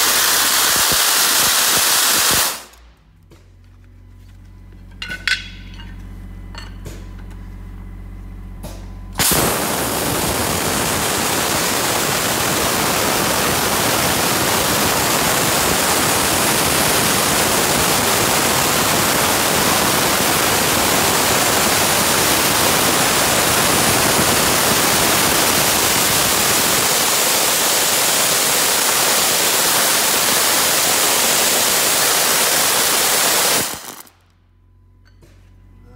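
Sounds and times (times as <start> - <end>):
dry-ice blasting nozzle hissing: 0.0 - 2.9, 9.2 - 34.2
low hum: 2.5 - 14.5, 34.1 - 35.9.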